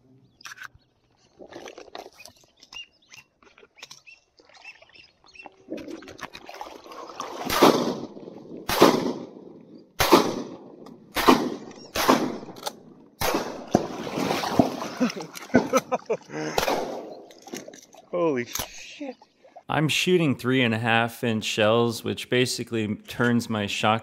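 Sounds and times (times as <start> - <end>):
wading in water: 0.8 - 8.7, 13.5 - 19.7
splashing and sloshing water: 1.2 - 9.0, 13.3 - 19.7
shotgun firing: 7.4 - 14.8, 16.6 - 17.2.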